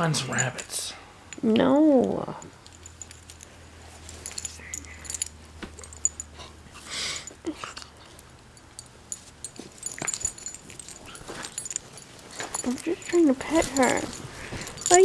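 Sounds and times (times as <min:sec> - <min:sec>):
bedding rustling: 0:02.5 - 0:06.7, 0:08.8 - 0:15.0
puppy sniffing and huffing: 0:09.2 - 0:15.0.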